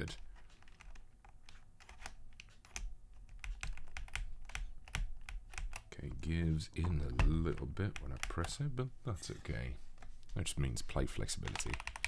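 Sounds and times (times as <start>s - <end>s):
mechanical keyboard keystroke clacks: 11.4s - 12.0s.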